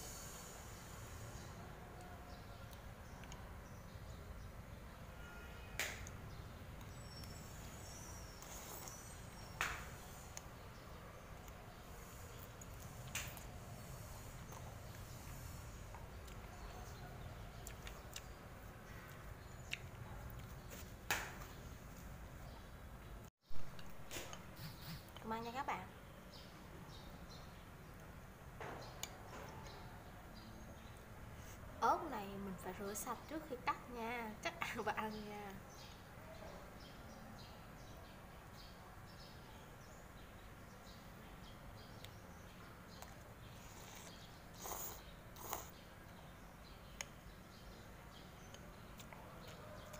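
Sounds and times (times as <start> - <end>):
slurping noodles: 8.4 - 9.2, 43.5 - 45.8.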